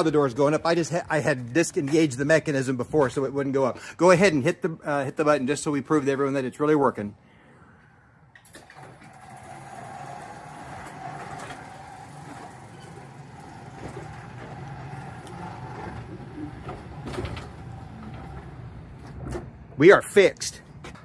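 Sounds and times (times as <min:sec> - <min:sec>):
garage door opener motor hum: 0:08.4 - 0:19.7
door rolling down tracks: 0:08.4 - 0:19.8.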